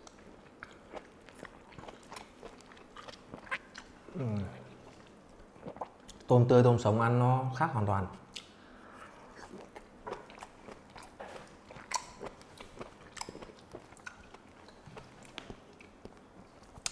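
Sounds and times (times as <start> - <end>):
man chewing with wet mouth smacks: 0.0 - 6.3, 8.3 - 16.9.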